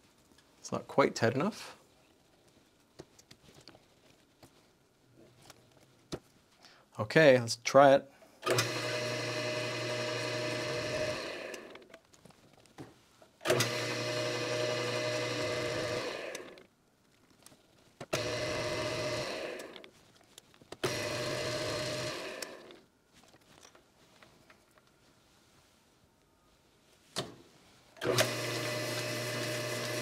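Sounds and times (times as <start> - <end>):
lathe motor humming: 8.4 - 11.8, 13.4 - 16.6, 18.1 - 19.9, 20.8 - 22.8, 28.0 - 30.0.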